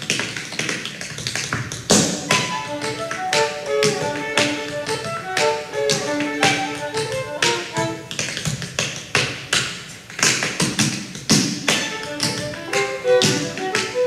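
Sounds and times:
tap shoes striking stage: 0:00.0 - 0:14.0
violin melody: 0:02.0 - 0:08.3, 0:11.7 - 0:14.0.

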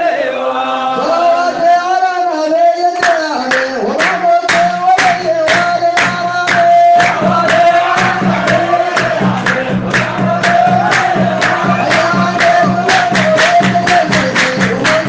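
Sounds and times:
voices chanting devotional song: 0:00.0 - 0:15.0
steady percussive beat: 0:03.0 - 0:15.0.

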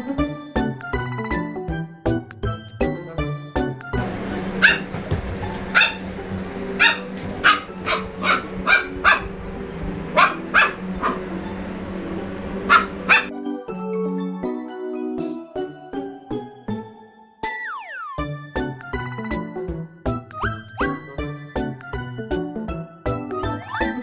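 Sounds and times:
steady low hum: 0:04.0 - 0:13.3
puppy yipping: 0:04.6 - 0:09.4, 0:10.1 - 0:11.4, 0:12.6 - 0:13.3, 0:23.4 - 0:24.0.

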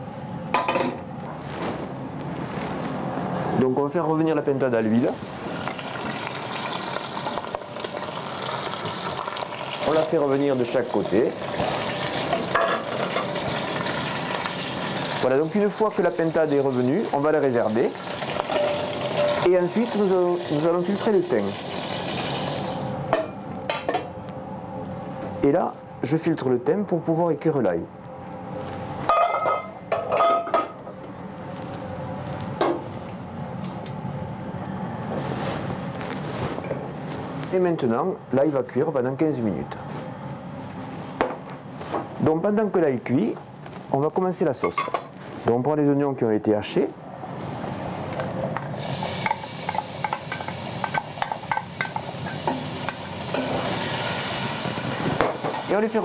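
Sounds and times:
onions sizzling in hot oil: 0:05.2 - 0:22.9, 0:48.7 - 0:56.0
metal pans clanking: 0:12.2 - 0:13.4, 0:18.3 - 0:19.5, 0:29.1 - 0:30.8, 0:44.6 - 0:45.1
steady low hiss: 0:30.8 - 0:56.0.

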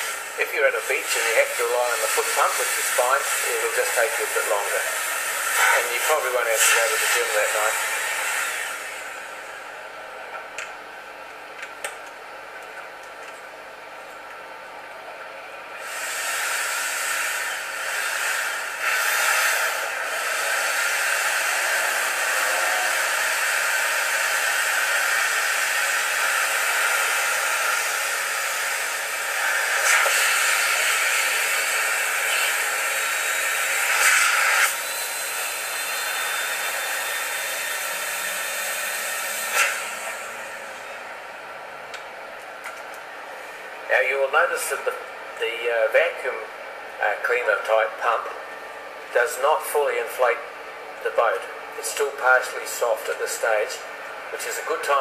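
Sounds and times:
vacuum blower rushing air: 0:00.0 - 0:09.9, 0:15.7 - 0:41.2.

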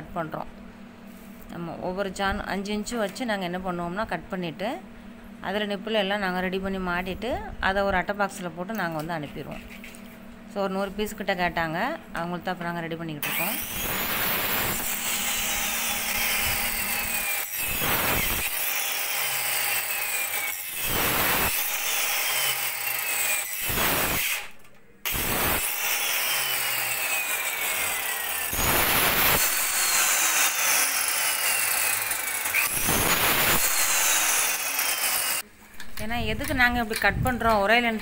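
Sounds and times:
circular saw motor whine: 0:13.2 - 0:24.4, 0:25.1 - 0:35.4
saw blade rasping through pipe: 0:13.2 - 0:24.5, 0:25.1 - 0:35.4.

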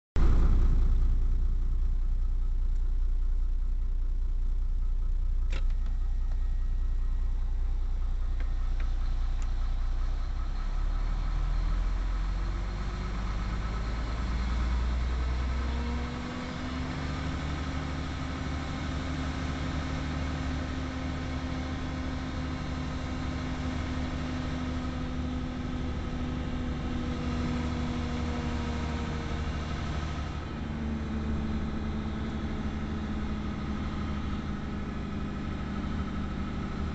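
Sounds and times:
diesel truck engine idling: 0:00.2 - 0:36.9
single click: 0:05.5 - 0:06.0.

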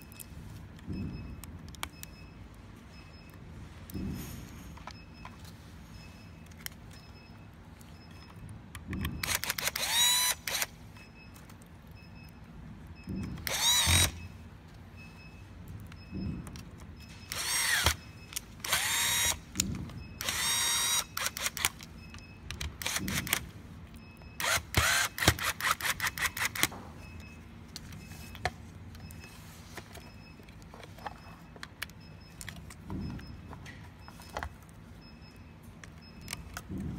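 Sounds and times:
electric screwdriver whine: 0:09.2 - 0:10.7, 0:13.4 - 0:14.2, 0:17.3 - 0:18.0, 0:18.6 - 0:19.4, 0:20.2 - 0:21.7, 0:24.4 - 0:26.7.

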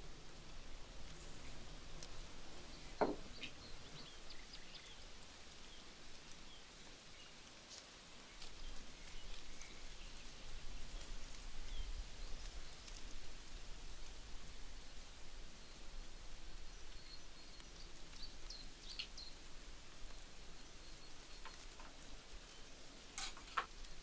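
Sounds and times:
faint outdoor background noise: 0:00.0 - 0:24.0.

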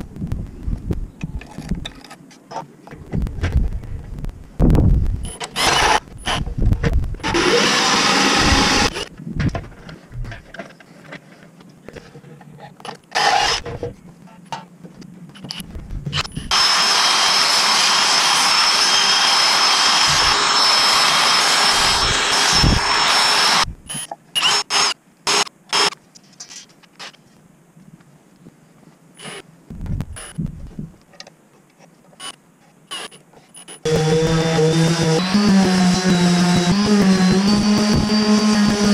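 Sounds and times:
drill sanding wood with whine: 0:07.2 - 0:09.0, 0:16.5 - 0:23.7, 0:33.9 - 0:38.9.

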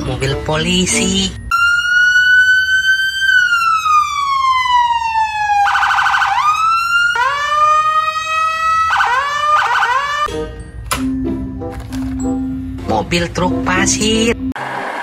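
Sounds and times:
police siren wailing: 0:01.5 - 0:10.3.

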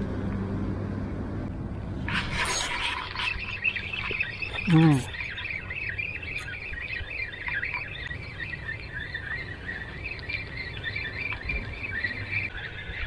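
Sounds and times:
small birds chirping: 0:02.1 - 0:13.0.

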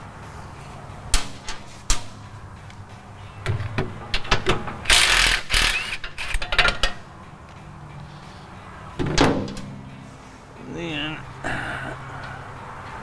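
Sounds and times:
ratchet wrench clicking: 0:04.9 - 0:07.0.

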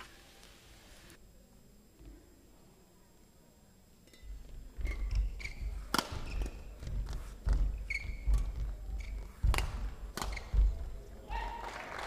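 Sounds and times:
shoes squeaking on court: 0:04.8 - 0:11.0
rackets striking shuttlecock: 0:05.9 - 0:07.6, 0:09.4 - 0:10.7.

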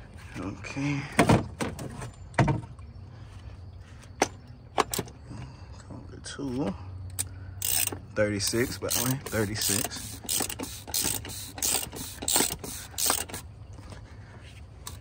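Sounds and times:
ratchet wrench clicking: 0:07.1 - 0:13.4.

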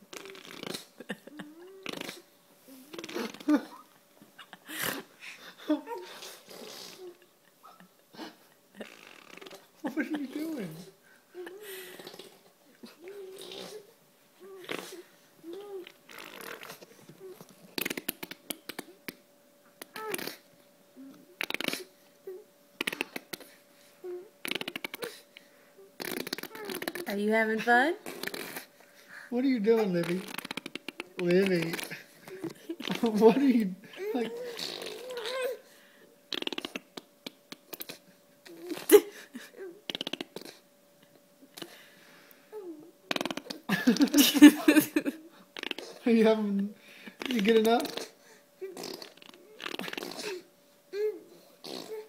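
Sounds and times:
wet sputtering mouth sounds: 0:00.0 - 0:03.9, 0:05.9 - 0:07.2, 0:08.2 - 0:13.8, 0:14.6 - 0:17.0, 0:17.7 - 0:19.2, 0:19.8 - 0:20.4, 0:21.2 - 0:21.9, 0:22.8 - 0:23.6, 0:24.4 - 0:25.2, 0:26.0 - 0:27.2, 0:28.0 - 0:28.7, 0:30.0 - 0:33.2, 0:34.1 - 0:35.5, 0:36.3 - 0:39.2, 0:39.8 - 0:40.6, 0:43.1 - 0:44.2, 0:45.6 - 0:46.0, 0:47.2 - 0:50.5, 0:51.6 - 0:52.0
baby grunting: 0:10.3 - 0:16.8, 0:19.9 - 0:20.4, 0:26.0 - 0:27.1, 0:33.9 - 0:35.6, 0:47.2 - 0:52.0
baby sucking and smacking: 0:30.1 - 0:33.0.

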